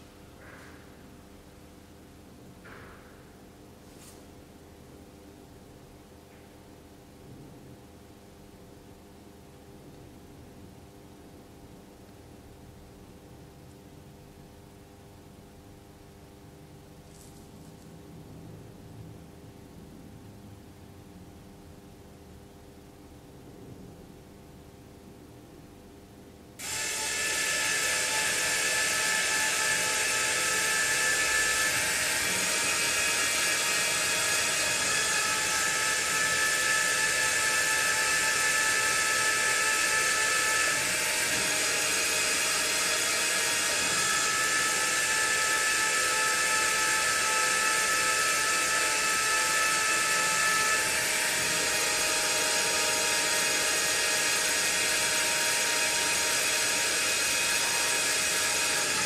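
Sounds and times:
electric motor whining: 0:26.6 - 0:59.0.

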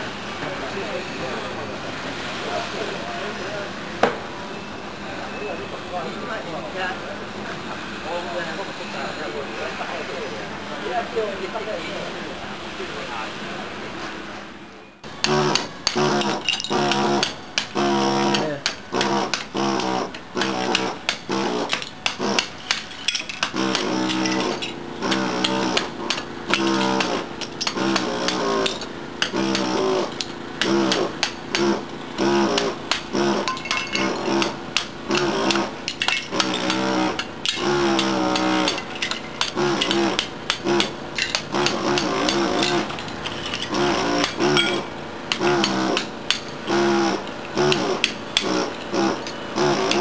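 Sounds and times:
air hammer buzzing: 0:15.0 - 0:50.0.

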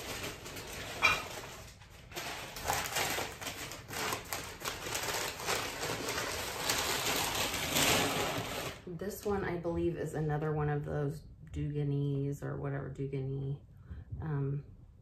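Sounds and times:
packing paper crinkling: 0:00.0 - 0:09.0.

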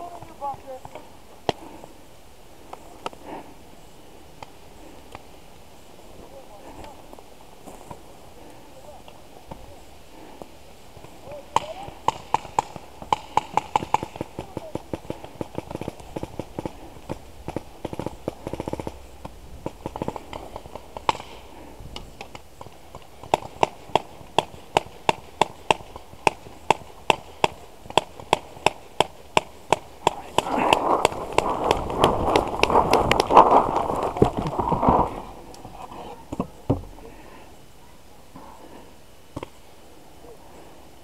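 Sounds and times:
paintball markers firing: 0:11.5 - 0:21.4, 0:22.2 - 0:34.4
rustle through tall grass: 0:29.2 - 0:37.6.

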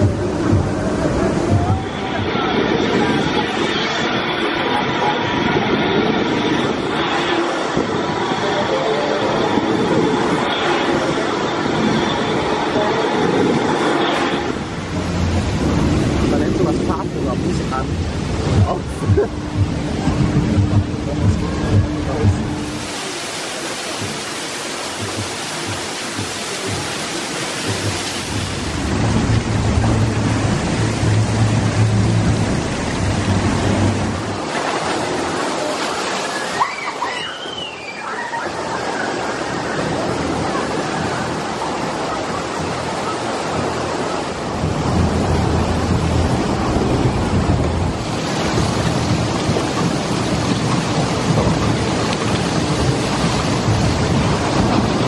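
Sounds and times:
rushing and splashing water: 0:00.0 - 0:55.0.

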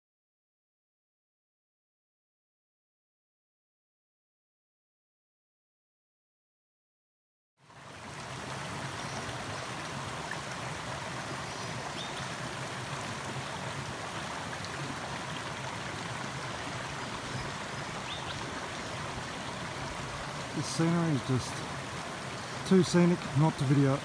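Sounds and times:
creek running over rocks: 0:07.6 - 0:24.0.

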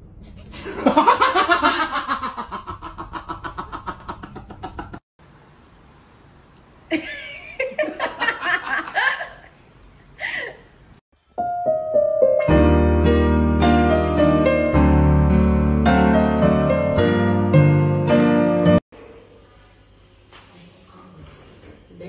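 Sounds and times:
person laughing hard: 0:00.6 - 0:05.0.

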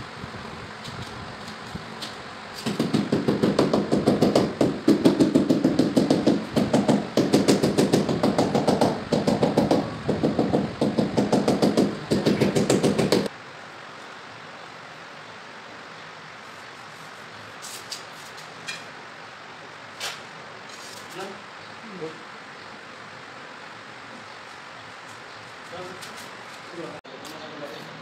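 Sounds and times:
hammer tapping on ceramic tiles: 0:02.8 - 0:13.3.

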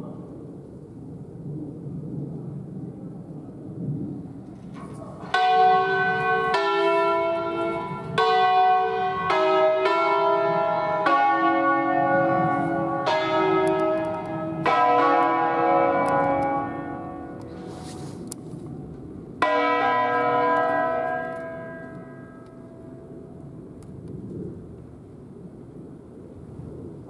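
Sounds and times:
church bells ringing: 0:04.8 - 0:23.6.

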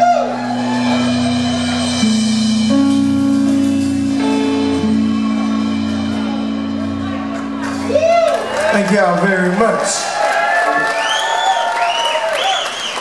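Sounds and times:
electric guitar: 0:00.0 - 0:08.7
drums: 0:00.0 - 0:09.2
keyboard chords: 0:00.0 - 0:09.9.

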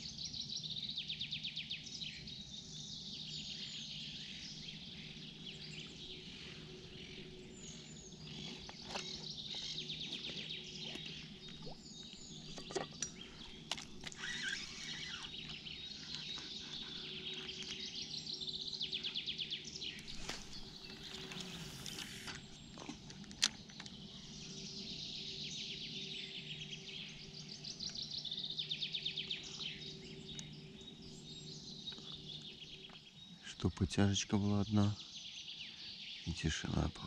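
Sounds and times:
songbirds trilling: 0:00.0 - 0:37.0.

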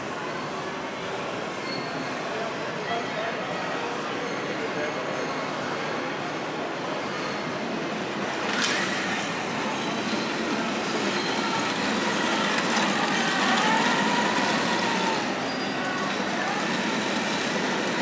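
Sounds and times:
model tank motor running: 0:08.0 - 0:18.0.

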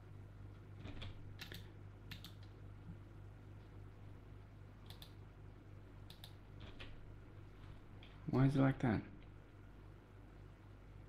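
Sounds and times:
low steady hum: 0:00.0 - 0:11.0
keyboard and mouse clicks: 0:00.8 - 0:02.5, 0:04.8 - 0:05.2, 0:06.0 - 0:07.0.

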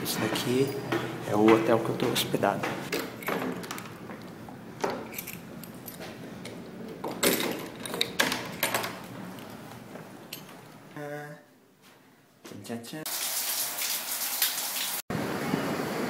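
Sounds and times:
keys jangling: 0:05.0 - 0:06.2.

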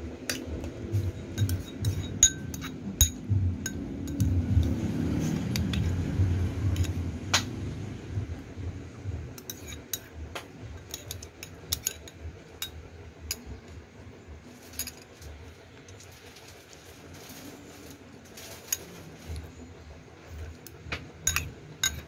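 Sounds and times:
low rumble: 0:00.0 - 0:09.4
metal spoon clinking on ceramic bowl: 0:01.3 - 0:04.4, 0:09.4 - 0:10.1, 0:10.8 - 0:13.4, 0:21.2 - 0:22.0.

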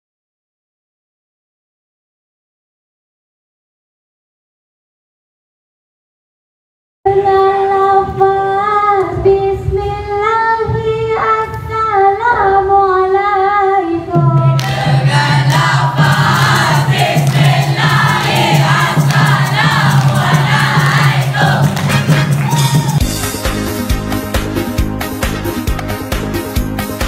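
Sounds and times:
girl singing into a microphone: 0:07.1 - 0:14.6
musical accompaniment with bass and beat: 0:14.2 - 0:27.0
choir singing: 0:14.6 - 0:22.7.

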